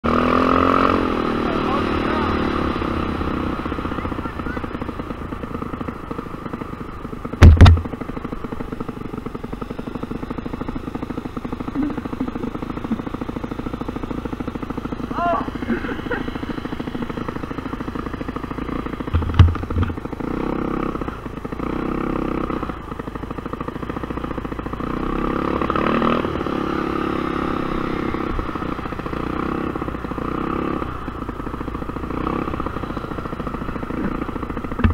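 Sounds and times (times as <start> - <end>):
scooter engine running: 0.0 - 34.9
sharp thump: 7.4 - 8.0, 19.1 - 20.0.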